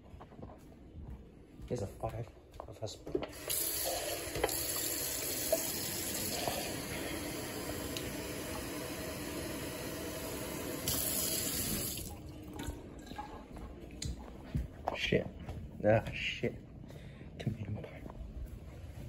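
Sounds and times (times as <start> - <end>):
faucet water running into sink: 3.3 - 12.2.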